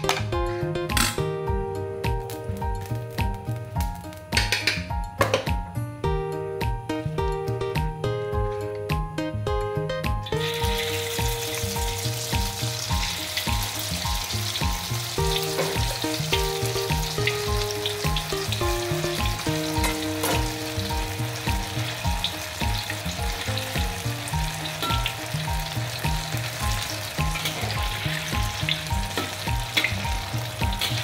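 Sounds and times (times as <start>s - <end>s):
background music with beat: 0.0s - 31.0s
batter deep-frying in hot oil: 10.2s - 31.0s.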